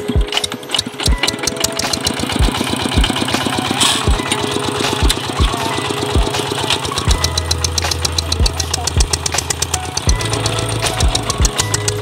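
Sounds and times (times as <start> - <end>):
diesel engine idling with chug: 1.3 - 11.7.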